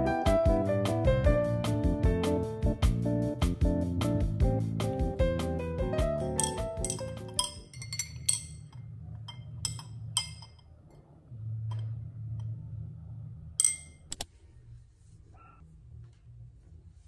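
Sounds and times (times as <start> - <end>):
glass straw clinking in glass: 6.4 - 10.7, 13.6 - 14.1.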